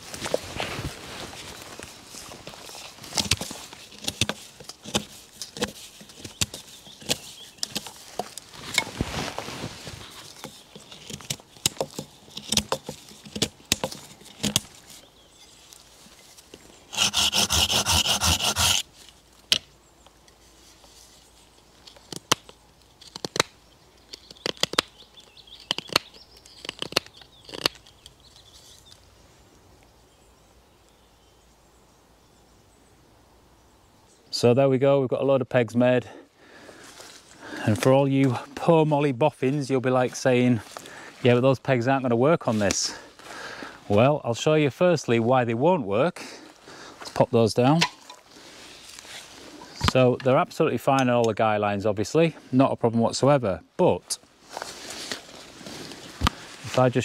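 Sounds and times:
blade scraping wood: 0:03.1 - 0:09.4, 0:16.9 - 0:18.9.

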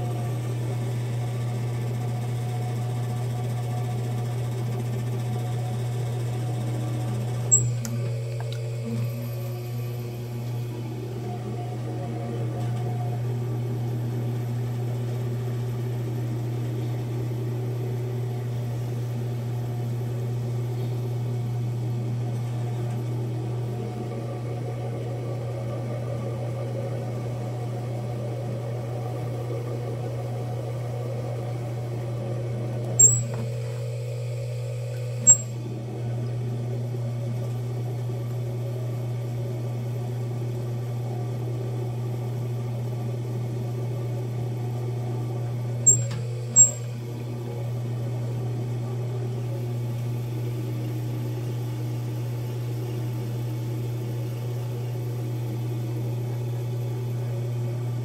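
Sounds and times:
pottery wheel motor humming: 0:00.0 - 0:58.0.

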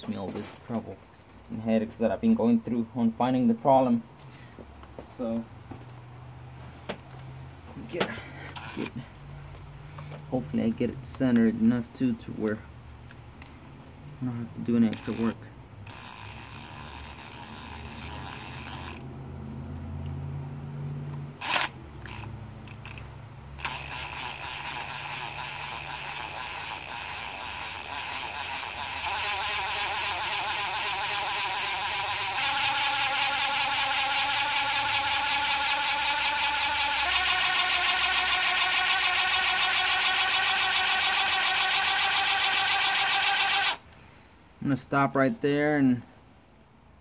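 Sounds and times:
small drill whining: 0:14.9 - 0:19.0, 0:23.6 - 0:43.8.

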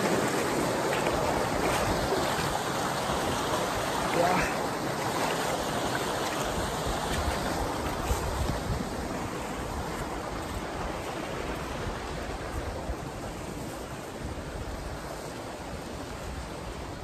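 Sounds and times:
stream rushing over rocks: 0:00.0 - 0:17.0.

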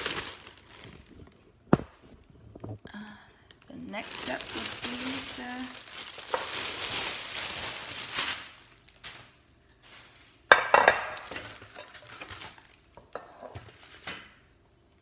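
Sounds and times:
plastic wrapping crinkling: 0:00.0 - 0:01.6, 0:03.5 - 0:10.5, 0:11.1 - 0:13.0.

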